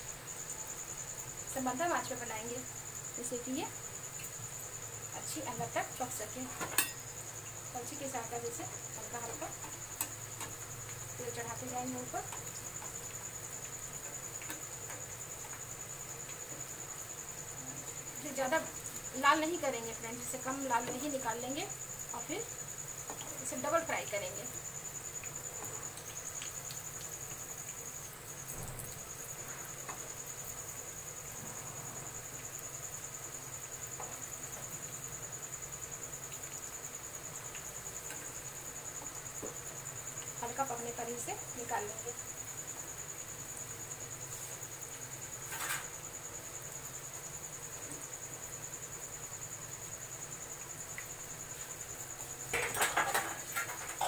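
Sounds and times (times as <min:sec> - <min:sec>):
food sizzling in hot oil: 0:00.0 - 0:54.0
metal spoon clattering on pan: 0:06.6 - 0:07.0, 0:52.5 - 0:54.0.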